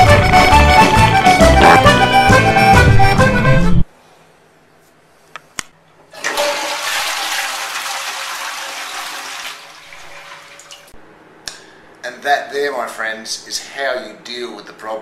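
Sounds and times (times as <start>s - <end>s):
toilet water rushing: 6.2s - 11.0s.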